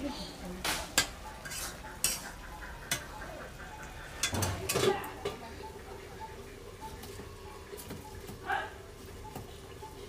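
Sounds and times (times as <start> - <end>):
metal cookware clattering: 0.9 - 3.1, 4.1 - 5.5
metal spatula scraping a pan: 1.0 - 3.1.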